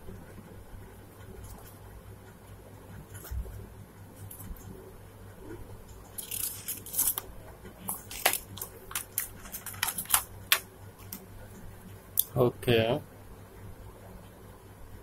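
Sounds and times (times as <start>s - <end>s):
paper rustling and crinkling: 6.1s - 11.2s.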